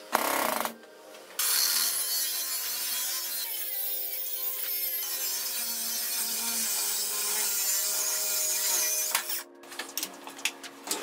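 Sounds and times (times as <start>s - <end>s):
angle grinder cutting metal: 1.4s - 9.5s.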